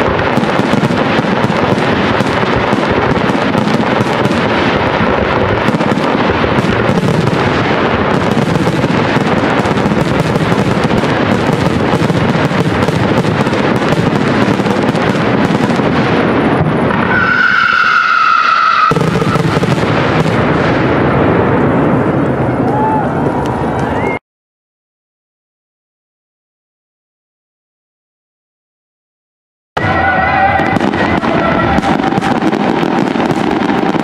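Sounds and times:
fireworks bangs and crackling: 0:00.0 - 0:24.2, 0:29.8 - 0:34.0
high whistling tone: 0:29.8 - 0:32.5.

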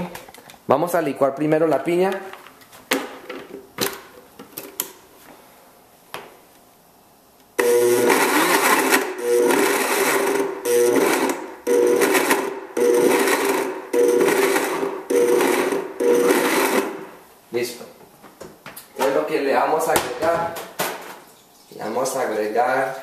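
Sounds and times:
blender pulsing: 0:07.6 - 0:17.1.

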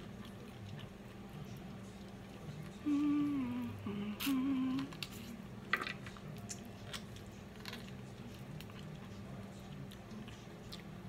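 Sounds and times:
woman humming mmm: 0:02.8 - 0:05.0
chewing mouth clicks and smacks: 0:06.0 - 0:11.0.

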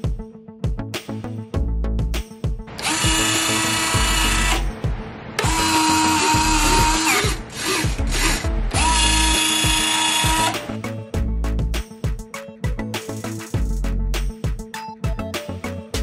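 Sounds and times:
small electric motor whining: 0:02.7 - 0:04.7, 0:05.4 - 0:10.7.

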